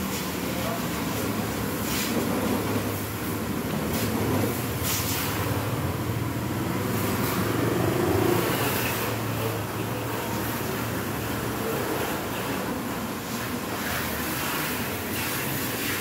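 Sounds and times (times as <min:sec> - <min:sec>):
pressure washer motor humming: 0:00.0 - 0:16.0
pressure washer spray hissing: 0:03.9 - 0:05.8, 0:13.3 - 0:16.0.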